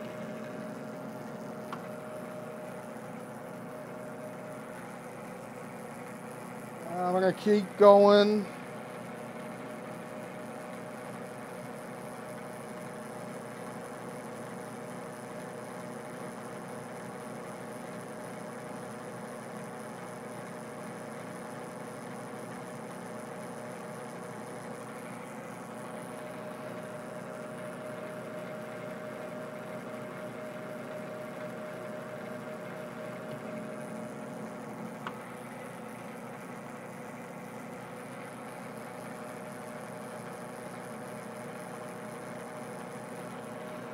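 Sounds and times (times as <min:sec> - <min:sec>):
metal lathe humming: 0:00.0 - 0:43.9
small tick: 0:35.0 - 0:35.2.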